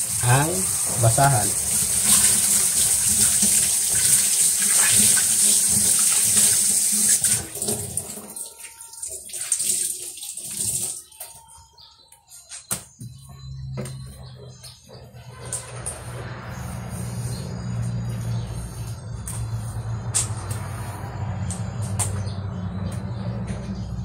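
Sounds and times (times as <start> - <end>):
rag rinsed and squeezed: 0.0 - 11.2
water drips: 0.0 - 11.5.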